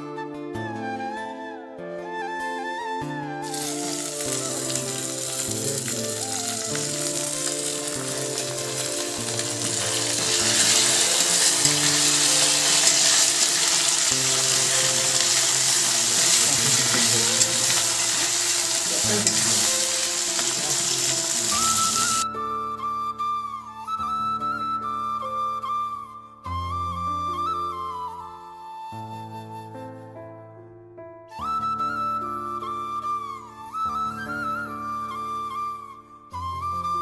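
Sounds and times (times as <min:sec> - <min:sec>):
background music with low notes: 0:00.0 - 0:37.0
onions sizzling in oil: 0:03.4 - 0:22.2
spatula turning onions: 0:03.5 - 0:22.2.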